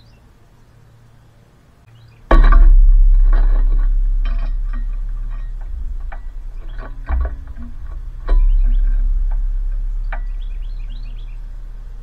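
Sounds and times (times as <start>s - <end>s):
bird landing on metal perch: 2.3s - 10.6s
low rumble: 2.3s - 12.0s.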